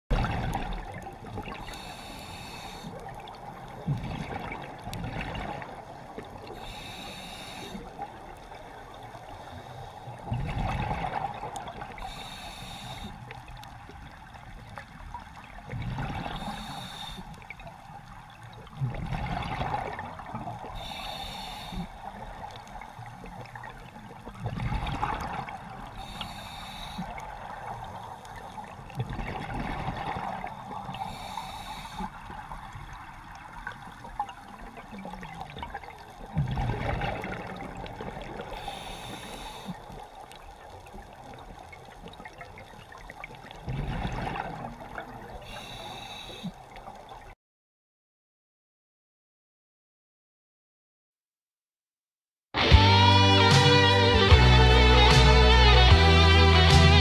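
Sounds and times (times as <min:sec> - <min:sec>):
exhaled bubbles rushing: 0:00.1 - 0:01.8, 0:03.0 - 0:06.5, 0:10.2 - 0:12.1, 0:15.2 - 0:16.5, 0:18.6 - 0:20.8, 0:23.4 - 0:26.0, 0:28.6 - 0:30.9, 0:32.3 - 0:38.6, 0:42.1 - 0:45.2
hissing regulator inhale: 0:01.6 - 0:03.2, 0:06.5 - 0:08.0, 0:09.3 - 0:10.2, 0:12.0 - 0:13.4, 0:16.2 - 0:17.5, 0:20.7 - 0:22.2, 0:25.9 - 0:27.3, 0:30.6 - 0:32.2, 0:38.6 - 0:39.9, 0:45.4 - 0:46.6.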